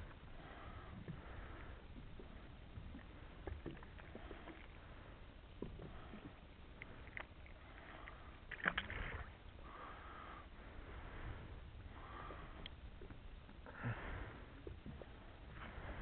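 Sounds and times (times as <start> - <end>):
water lapping at hull: 0.0 - 16.0.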